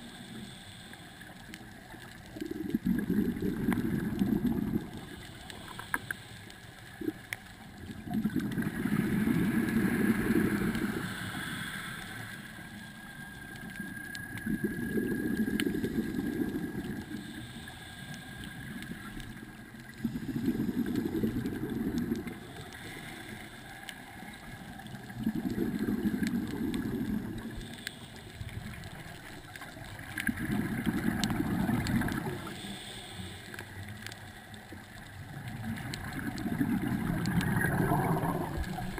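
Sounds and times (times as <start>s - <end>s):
underwater exhaled bubbles: 0.0s - 38.9s
regulator intake breath: 10.1s - 12.9s, 32.5s - 33.8s.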